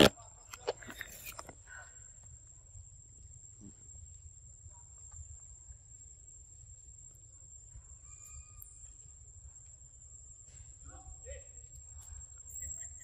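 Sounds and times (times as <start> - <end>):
high-pitched insect drone: 5.6 - 10.4, 11.2 - 13.0.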